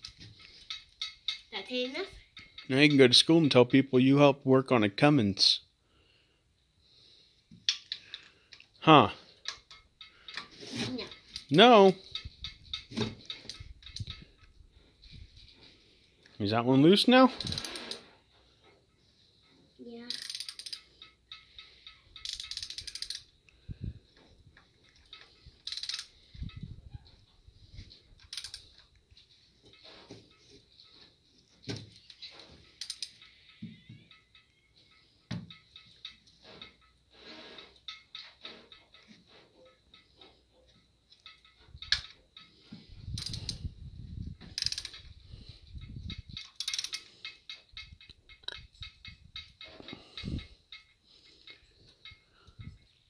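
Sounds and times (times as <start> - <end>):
socket ratchet clicking: 11.2 - 14.6, 17.4 - 18.0, 20.1 - 23.4, 24.8 - 26.6, 28.2 - 29.0, 31.9 - 37.0, 43.1 - 43.7, 44.4 - 45.2, 45.8 - 52.2.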